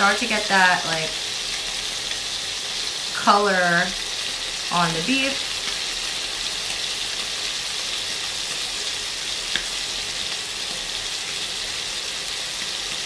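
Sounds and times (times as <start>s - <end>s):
beef sizzling in a pan: 0.0s - 13.0s.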